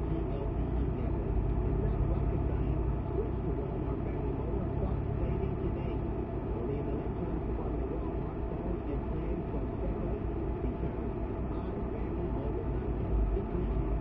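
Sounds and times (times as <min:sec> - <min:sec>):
car engine and road rumble: 0:00.0 - 0:14.0.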